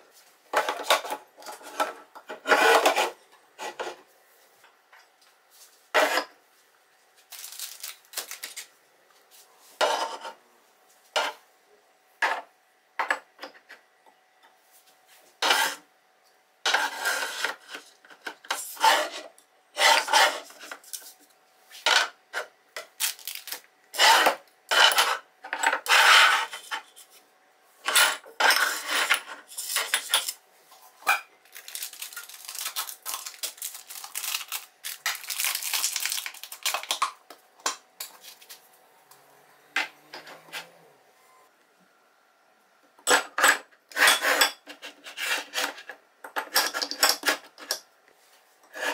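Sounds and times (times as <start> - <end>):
packaging rustling: 7.2 - 8.7, 23.0 - 23.6, 31.5 - 37.0.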